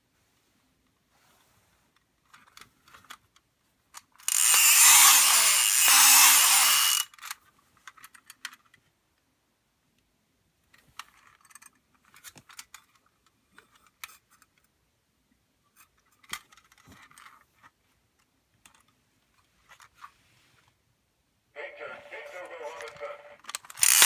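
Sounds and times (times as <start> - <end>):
tin toy clicking and rattling: 4.2 - 8.6, 23.6 - 24.0.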